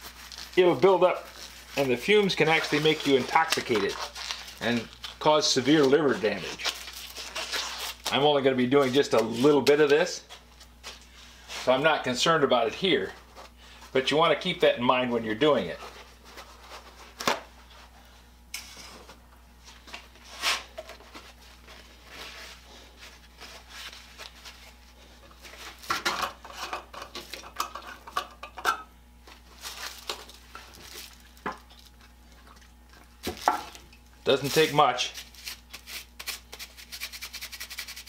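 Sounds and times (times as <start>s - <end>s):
paper towel rustling: 0.0s - 4.9s, 18.8s - 25.8s, 34.3s - 37.0s.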